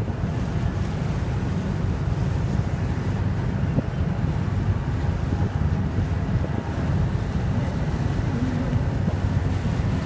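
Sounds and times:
sea wash: 0.0s - 10.0s
wind buffeting microphone: 0.0s - 10.0s.

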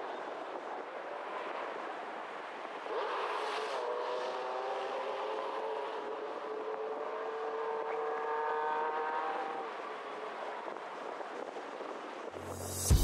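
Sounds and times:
rushing noise: 12.4s - 13.0s.

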